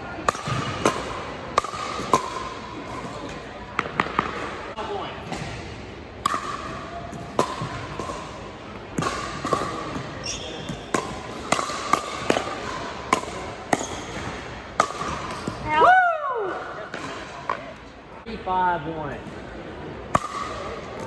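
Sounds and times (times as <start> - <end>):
shoe squeaks on hardwood floor: 10.2 - 10.8.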